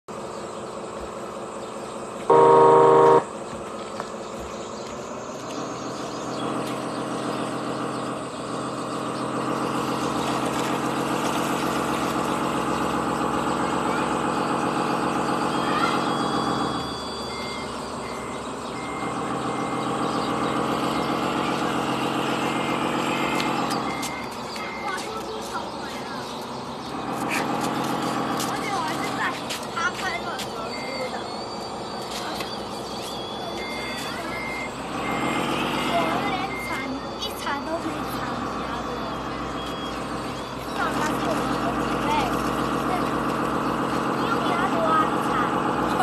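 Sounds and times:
motor and hydraulic pump drone: 0.1 - 46.0
faint high beep: 2.3 - 3.3, 15.4 - 19.8, 30.6 - 40.0
loud horn-like tone: 2.3 - 3.3, 34.9 - 36.3.

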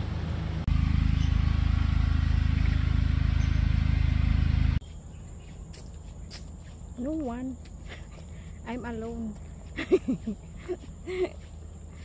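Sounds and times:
loud low fluttering rumble: 0.0 - 4.8.

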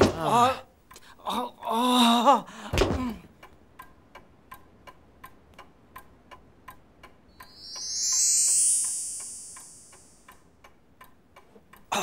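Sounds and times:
clock ticking: 3.1 - 12.0
cartoon whoosh of flying craft: 7.5 - 10.2.

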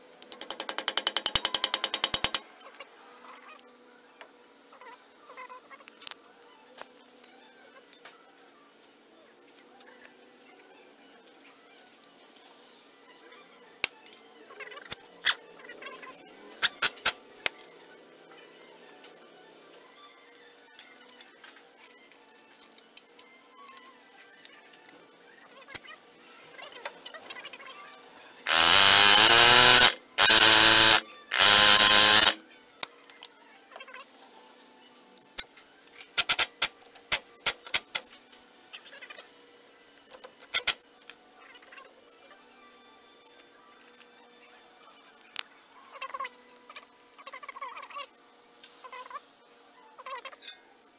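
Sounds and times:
pneumatic air hammer: 0.2 - 2.4, 16.6 - 17.2, 28.5 - 32.4, 36.2 - 38.0.

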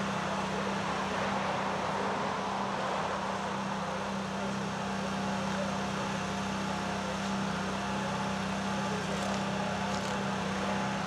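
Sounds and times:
fire engine idling: 2.6 - 11.0.

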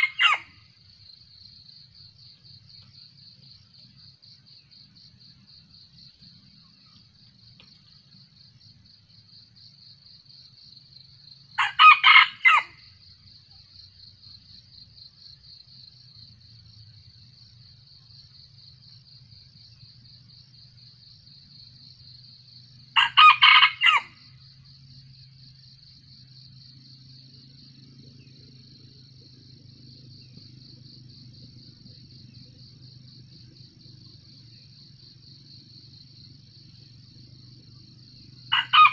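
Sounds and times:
rooster crowing: 0.0 - 0.5, 11.6 - 12.8, 23.0 - 24.2, 38.5 - 38.9
insects chirring: 0.0 - 38.9.

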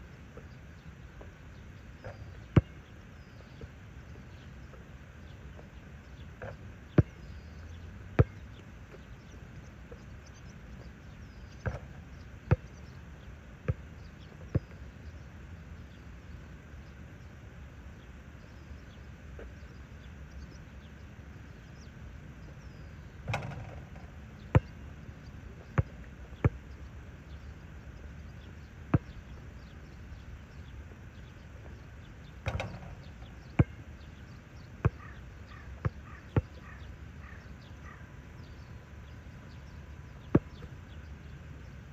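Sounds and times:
basketball bouncing on asphalt: 2.0 - 2.8, 6.4 - 7.5, 8.2 - 9.0, 11.6 - 12.8, 23.3 - 24.8, 25.7 - 26.7, 28.9 - 29.2, 32.4 - 35.2, 35.8 - 36.8.

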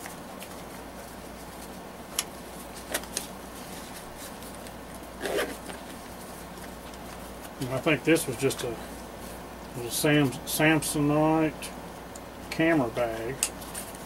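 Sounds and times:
fabric rustle: 2.5 - 7.6
zipper rasp: 5.2 - 5.6.

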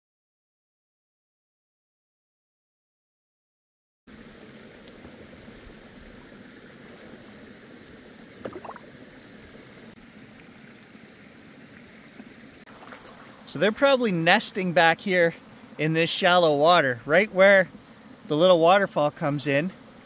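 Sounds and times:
stream water running: 4.1 - 20.0
fish splashing into water: 8.4 - 9.0, 12.7 - 13.4.

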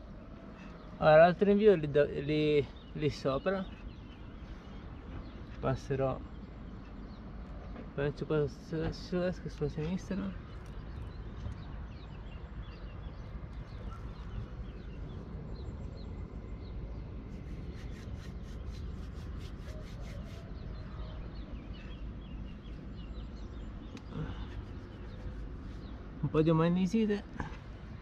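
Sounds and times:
small birds chirping: 0.0 - 28.0
steady low rumble: 9.5 - 19.7.

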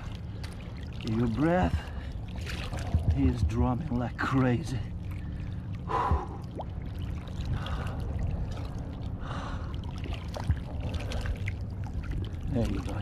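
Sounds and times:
water lapping against wall: 0.0 - 13.0
fish drumming croak: 5.2 - 13.0.

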